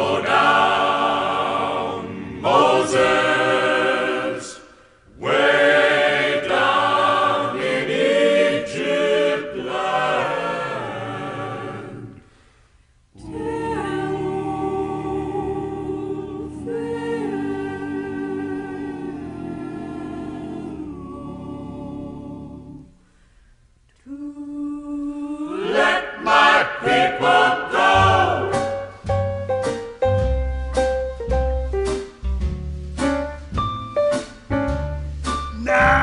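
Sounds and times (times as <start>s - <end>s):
choir singing a cappella: 0.0s - 23.2s, 24.0s - 29.0s.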